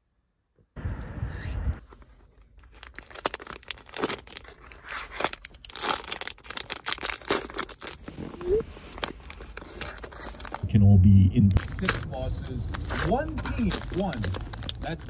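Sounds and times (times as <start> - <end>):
foil wrapper crinkling and tearing: 2.0 - 10.6, 11.6 - 15.0
low rumble: 10.5 - 15.0.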